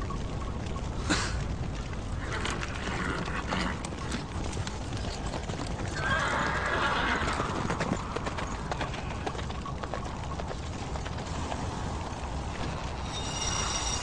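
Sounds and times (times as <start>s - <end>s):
horse hooves clip-clopping: 0.0s - 14.0s
horse neighing: 2.2s - 4.2s, 5.8s - 7.8s.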